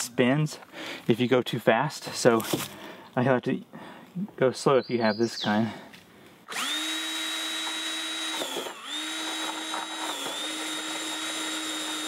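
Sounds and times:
drill cutting through plastic: 6.5 - 12.0.

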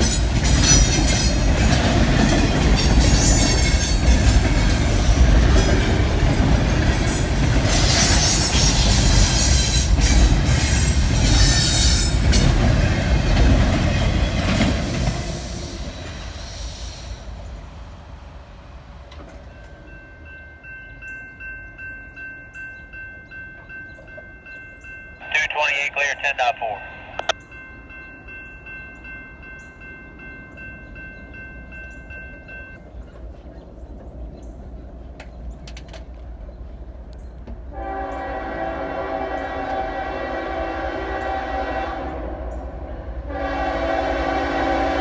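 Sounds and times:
train wheels rumbling on rail: 0.0 - 19.9.

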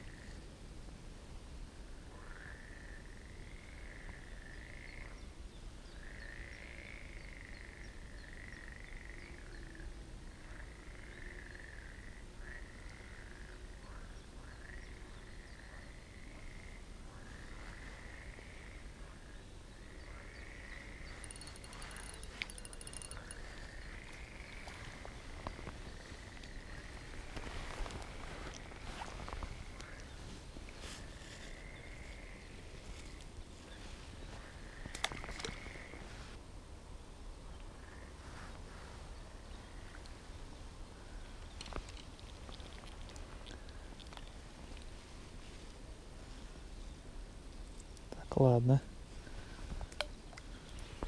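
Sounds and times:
chorus of frogs calling: 19.8 - 30.1.

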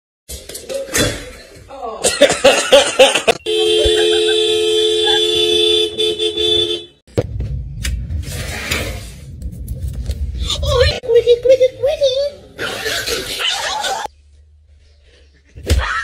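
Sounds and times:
car horn blast: 3.4 - 7.0
low rumble: 7.1 - 12.6.

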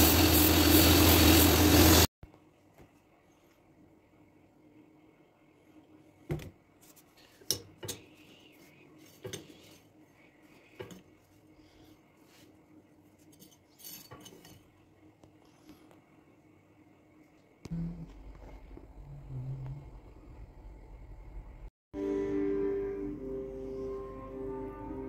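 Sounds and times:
knife scraping and rattling: 13.2 - 14.7.

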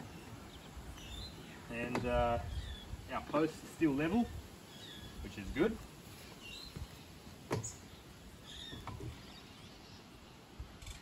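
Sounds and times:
faint bird chirps: 2.4 - 3.0.

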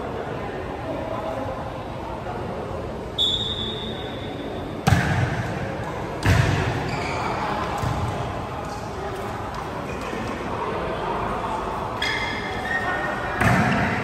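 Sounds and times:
referee's whistle blast: 3.2 - 4.4
volleyball struck hard: 4.8 - 5.4.

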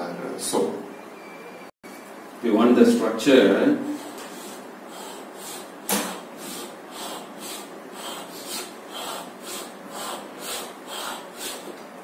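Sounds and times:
chalk scratching on chalkboard: 4.0 - 11.7
chalk tapping on chalkboard: 4.1 - 11.8.

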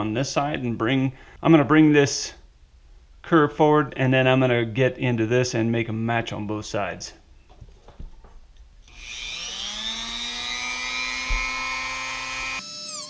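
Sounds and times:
rotary tool high whine: 8.9 - 13.0.

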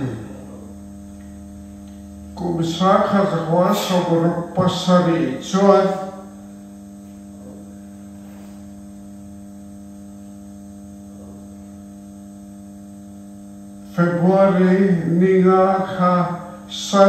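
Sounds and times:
electrical mains hum: 0.0 - 17.0
man's voice: 2.4 - 6.2, 14.0 - 17.0.

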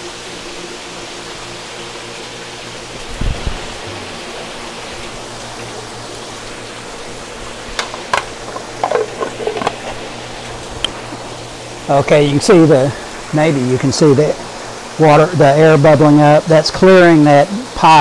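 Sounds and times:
pond pumps humming: 0.0 - 18.0
water rushing: 1.0 - 18.0
sharp clicks and knocks: 7.8 - 10.0.

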